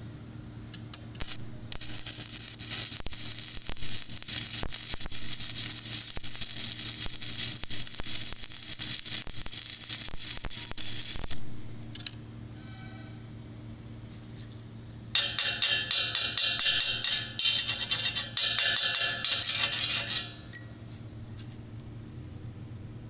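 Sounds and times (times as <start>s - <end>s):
low steady hum: 0.0s - 23.0s
welding arc crackling: 1.0s - 12.1s, 15.2s - 20.4s.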